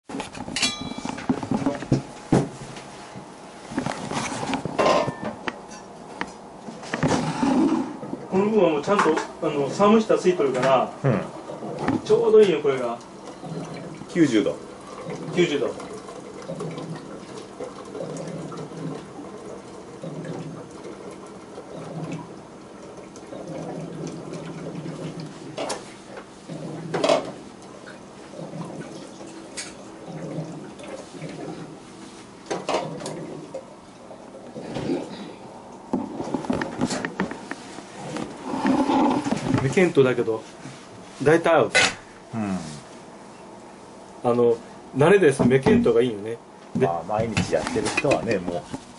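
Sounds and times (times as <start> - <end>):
ringing clink: 0.6 - 1.2
metal clanks: 0.6 - 1.3
water pouring into metal kettle: 12.7 - 25.4.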